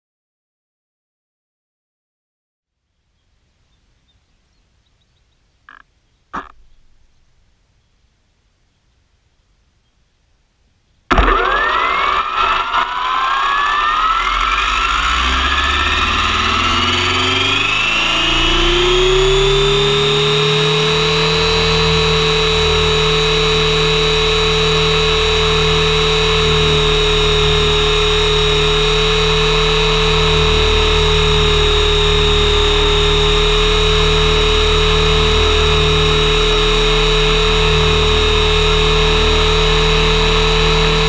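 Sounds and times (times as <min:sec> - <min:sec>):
rc helicopter motor whining: 0:11.1 - 0:41.0.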